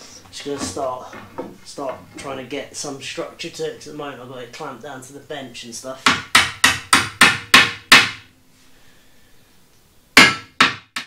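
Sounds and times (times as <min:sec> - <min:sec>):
hammer knocking wooden slats: 0:06.0 - 0:08.3, 0:10.2 - 0:11.0.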